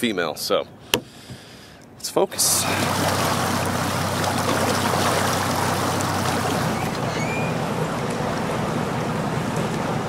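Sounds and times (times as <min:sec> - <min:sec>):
outboard motor humming: 0:02.3 - 0:10.0
water churning in wake: 0:02.3 - 0:10.0.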